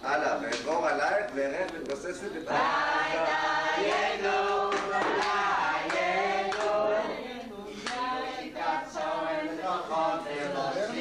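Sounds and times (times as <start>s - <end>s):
voices chanting together: 2.4s - 11.0s.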